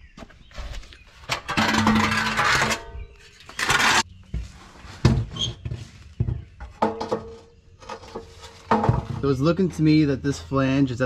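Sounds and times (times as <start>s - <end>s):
metal pipe scraping: 1.2s - 4.1s.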